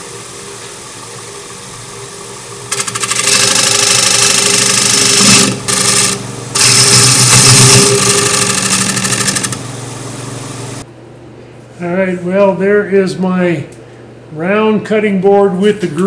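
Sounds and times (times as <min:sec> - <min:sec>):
lathe motor hum: 0:00.0 - 0:10.8
scraper cutting wood on lathe: 0:02.7 - 0:09.6.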